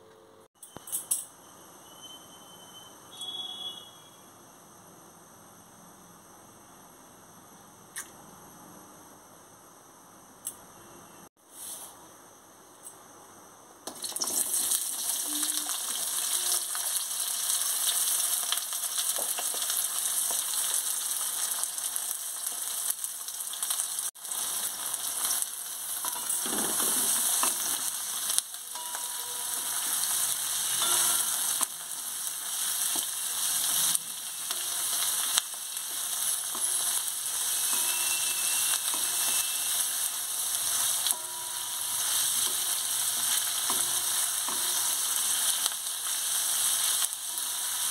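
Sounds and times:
onions sizzling in hot oil: 13.8 - 47.9.

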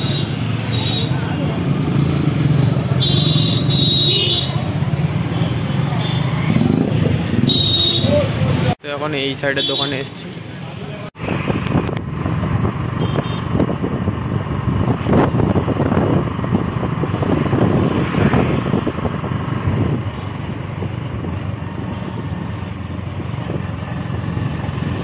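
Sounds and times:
wind noise: 11.2 - 22.4.

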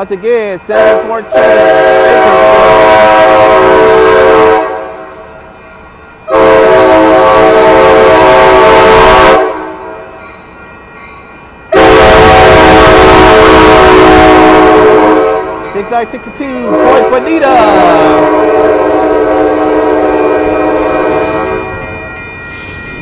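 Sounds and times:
train horn blasts: 0.7 - 5.2, 6.3 - 10.0, 11.7 - 15.7, 16.6 - 21.7.

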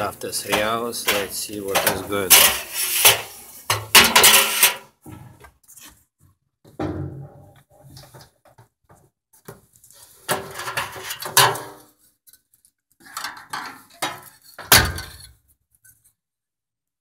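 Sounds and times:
clattering knocks in metal drum: 0.5 - 4.8, 10.3 - 11.8.

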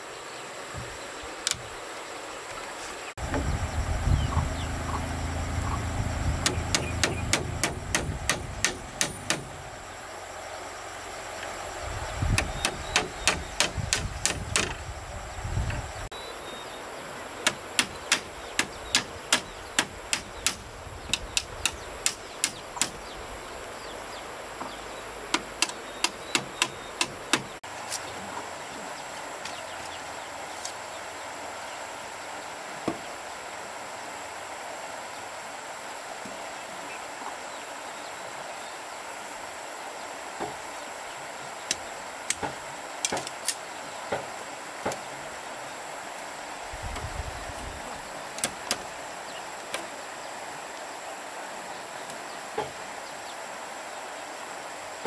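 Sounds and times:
background hiss: 0.0 - 55.0
low rumble: 3.2 - 10.0
hand tool sharp blows: 6.4 - 9.6, 12.4 - 14.8, 17.5 - 23.0.

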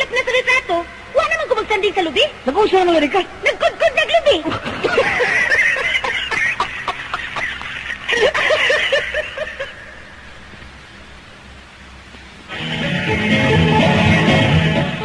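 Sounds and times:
people laughing heartily: 3.6 - 9.9.

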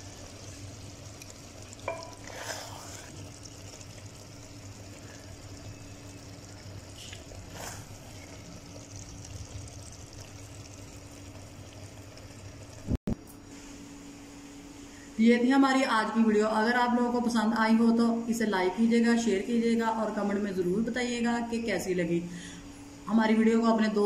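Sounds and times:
spoon knocking on plate: 1.8 - 2.2.

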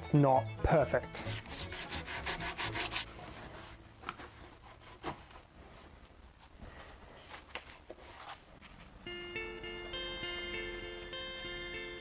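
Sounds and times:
sandpaper rubbing on wood: 1.2 - 3.1.

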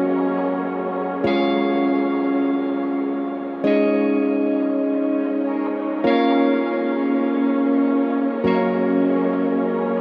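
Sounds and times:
soft ambient instrumental music: 0.0 - 10.0.

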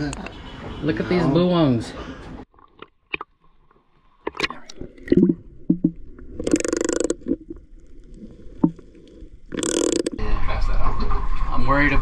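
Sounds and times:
muffled water sloshing underwater: 2.4 - 10.2.

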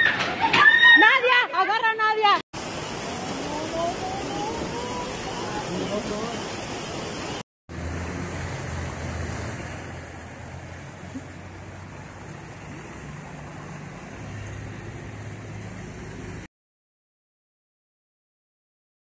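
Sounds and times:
floodwater rushing: 2.6 - 16.5.

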